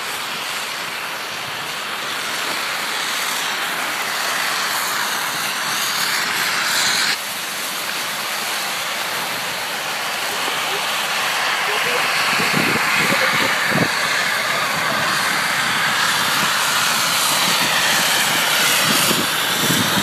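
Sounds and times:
wind on microphone: 11.7 - 20.0.

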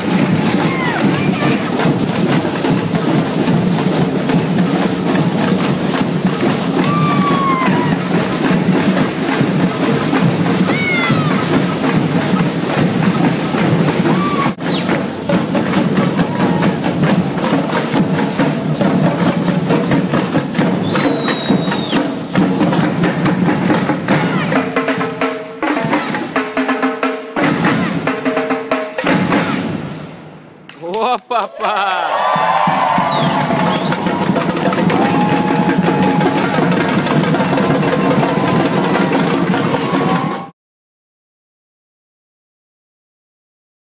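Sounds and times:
drum beat with sharp strokes: 0.0 - 30.2, 32.1 - 40.5
samba percussion music: 0.0 - 40.5.

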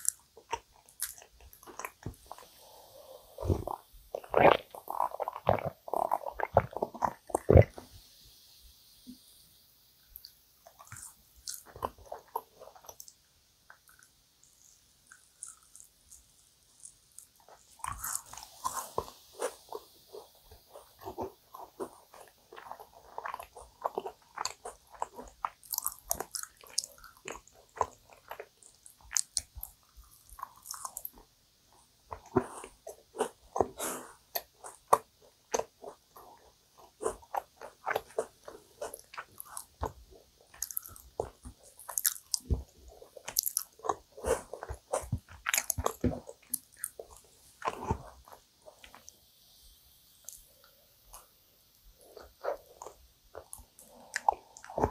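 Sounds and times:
chewing sticky cookie: 0.0 - 7.9, 10.1 - 49.6, 51.9 - 54.9
wet mouth clicks and smacks: 10.2 - 18.4, 37.3 - 42.6, 43.2 - 47.0.

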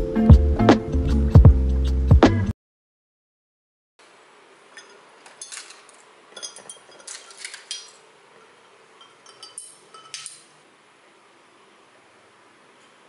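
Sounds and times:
ice and straw clinking in glass: 4.8 - 8.0, 9.0 - 10.5.

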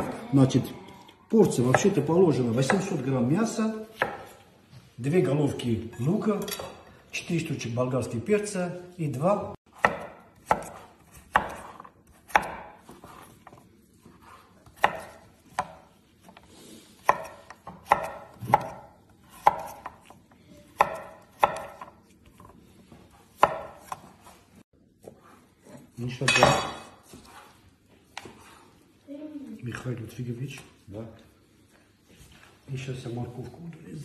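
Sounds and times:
knife chopping on wooden board: 3.9 - 4.4, 9.7 - 16.4, 17.0 - 24.4.

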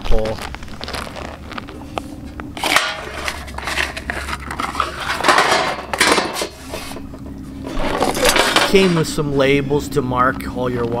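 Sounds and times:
sheet metal clattering and scraping: 2.6 - 9.2.

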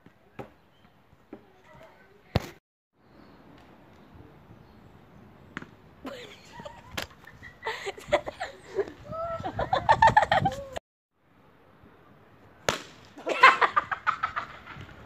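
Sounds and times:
boys laughing: 6.0 - 10.8, 13.2 - 15.0.

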